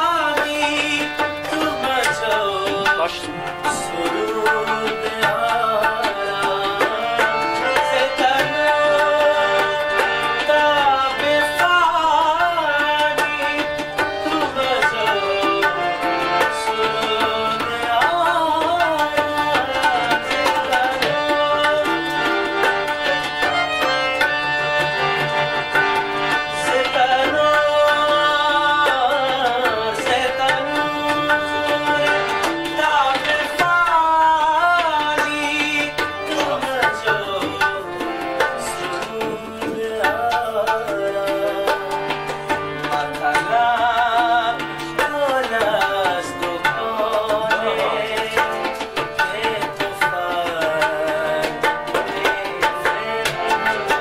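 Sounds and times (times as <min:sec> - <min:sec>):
man singing ornamented melody: 0:00.0 - 0:24.4, 0:26.3 - 0:54.0
harmonium held notes: 0:00.0 - 0:54.0
tabla rhythm: 0:00.0 - 0:54.0.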